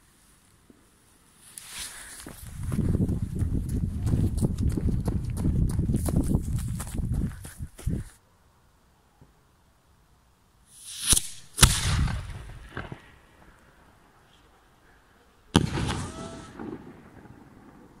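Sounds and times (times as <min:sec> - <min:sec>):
rising firework hiss: 0:01.4 - 0:02.6, 0:10.6 - 0:14.5, 0:15.5 - 0:17.7
firework bangs: 0:10.8 - 0:13.4, 0:15.5 - 0:18.0.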